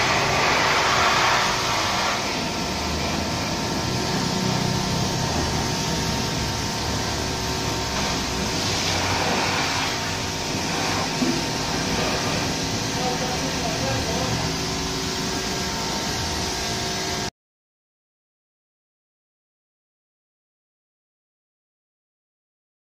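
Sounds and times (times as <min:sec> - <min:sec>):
pressure washer motor hum: 0:00.0 - 0:17.3
water spray hissing: 0:07.7 - 0:14.4.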